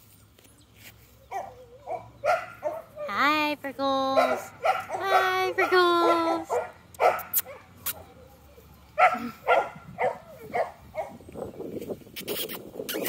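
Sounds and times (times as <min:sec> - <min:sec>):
puppy barking in high yaps: 0:01.3 - 0:03.1, 0:04.1 - 0:08.2, 0:09.0 - 0:11.2.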